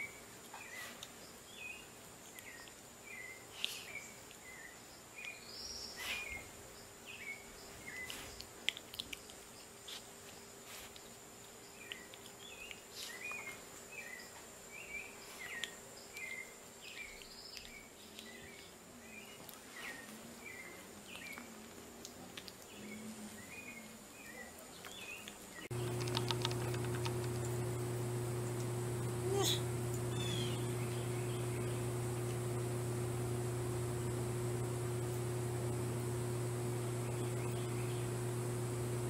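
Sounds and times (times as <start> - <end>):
steady low hum: 25.7 - 39.0
soft clicks: 25.8 - 27.8.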